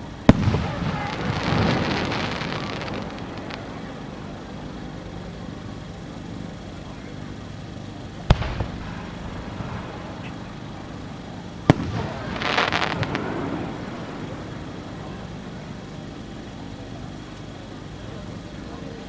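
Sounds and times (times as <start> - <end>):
firework crackling: 0.0 - 18.8
firework bang: 0.3 - 3.8, 8.3 - 10.6, 11.6 - 14.0.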